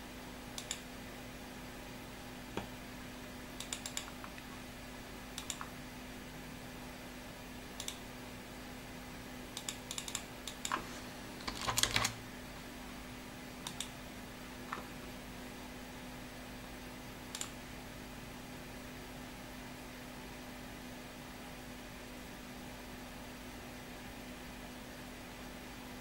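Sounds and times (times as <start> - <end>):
steady low hum: 0.0 - 26.0
computer mouse clicks: 0.6 - 0.8, 3.6 - 4.5, 5.4 - 5.7, 7.8 - 8.0, 9.6 - 10.8, 13.6 - 14.0, 17.3 - 17.6
keyboard keystrokes: 3.6 - 4.4, 5.4 - 5.7, 9.6 - 10.8, 11.4 - 12.2.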